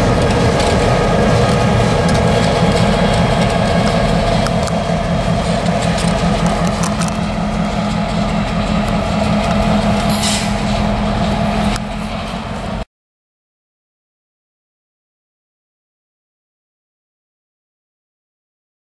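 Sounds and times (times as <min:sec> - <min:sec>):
diesel locomotive running: 0:00.0 - 0:12.9
high hiss of air: 0:10.1 - 0:10.7.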